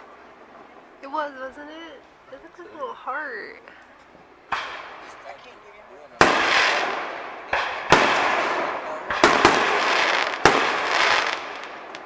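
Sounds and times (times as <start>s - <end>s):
crackling hiss of burning stars: 0.0s - 12.0s
firework shells bursting: 4.0s - 5.4s, 6.2s - 12.0s.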